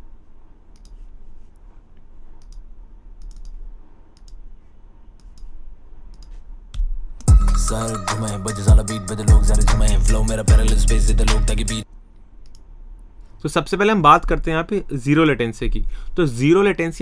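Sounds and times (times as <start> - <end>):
computer mouse clicks: 0.7 - 4.5, 5.1 - 7.3, 12.4 - 12.7
hip-hop beat with booming kick: 7.3 - 11.8.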